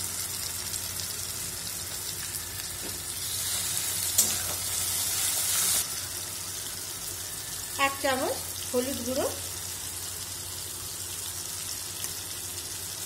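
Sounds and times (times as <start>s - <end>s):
paste sizzling in oil: 0.0s - 13.0s
metal spatula stirring: 3.3s - 5.8s.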